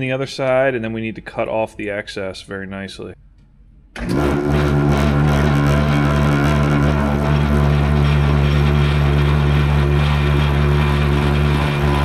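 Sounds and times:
power tool motor hum: 0:04.0 - 0:12.0.

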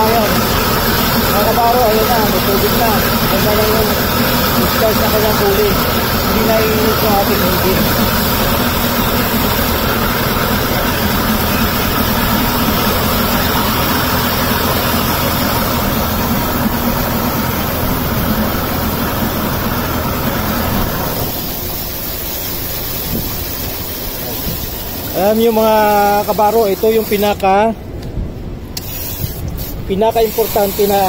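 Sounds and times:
outboard motor running: 0:00.0 - 0:27.3.

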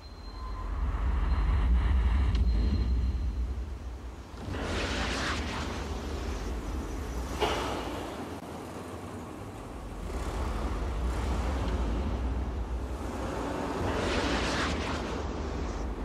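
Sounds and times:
car engine rumble: 0:05.5 - 0:16.0.

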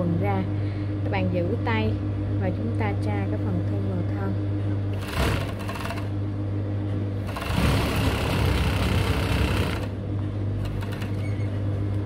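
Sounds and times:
steady low hum: 0:00.0 - 0:12.0
overlock machine stitching: 0:04.9 - 0:06.1, 0:07.2 - 0:09.9, 0:10.6 - 0:11.4.

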